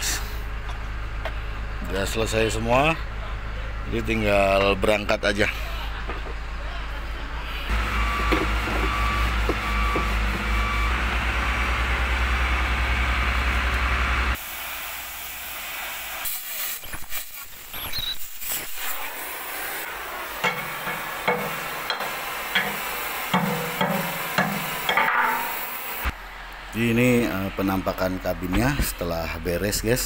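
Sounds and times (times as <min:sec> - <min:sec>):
pulsing machine hum: 0:07.5 - 0:14.4
cutting torch hissing: 0:07.7 - 0:30.0.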